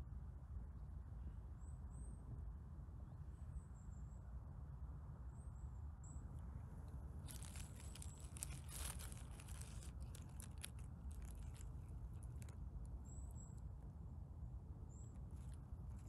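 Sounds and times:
forest litter crackling: 6.9 - 12.7, 15.2 - 16.0.

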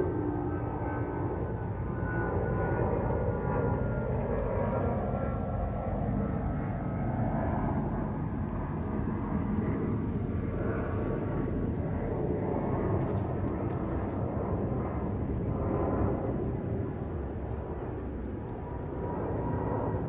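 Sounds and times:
jet engines passing overhead: 0.0 - 20.0.

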